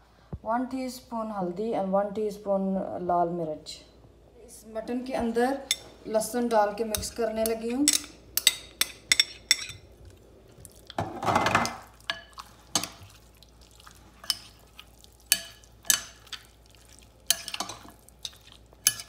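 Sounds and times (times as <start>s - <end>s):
metal spoon clinking against bowl: 6.9s - 9.8s, 15.3s - 16.3s, 17.3s - 19.0s
spoon scraping stir in bowl: 6.9s - 9.9s, 11.7s - 19.0s.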